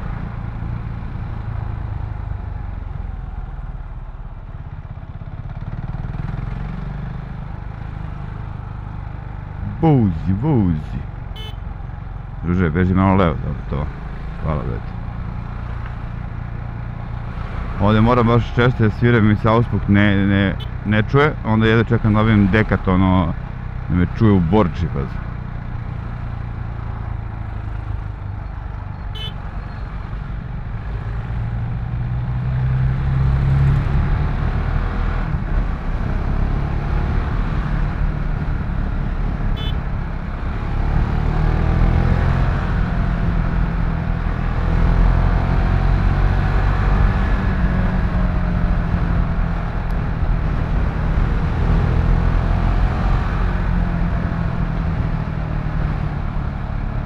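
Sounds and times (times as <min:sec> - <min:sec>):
motorcycle engine accelerating: 0:04.7 - 0:10.1, 0:25.3 - 0:57.0.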